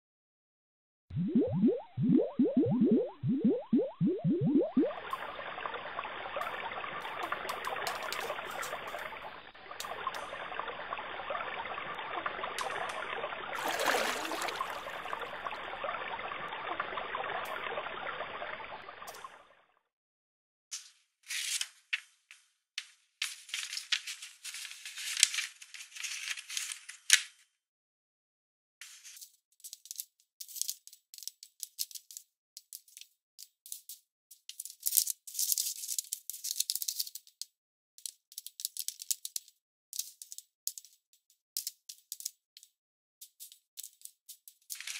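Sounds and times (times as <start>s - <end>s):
water trickling and babbling: 1.1s - 19.6s
paper rustling and crackling: 23.2s - 27.4s, 43.4s - 44.9s.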